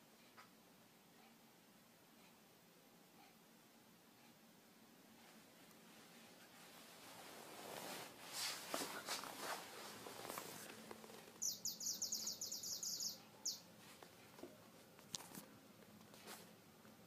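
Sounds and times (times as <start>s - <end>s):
rustling and light knocks: 6.3s - 11.4s
animal chirping: 11.4s - 13.7s.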